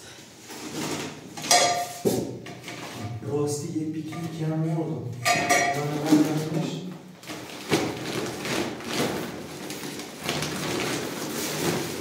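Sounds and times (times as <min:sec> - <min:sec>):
plastic tablecloth crinkling: 0:06.0 - 0:12.0.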